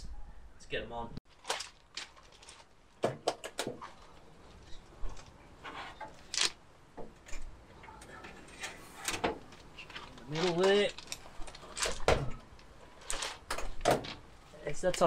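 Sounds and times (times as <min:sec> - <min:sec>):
wire rack clicking and knocking: 0:10.3 - 0:14.2.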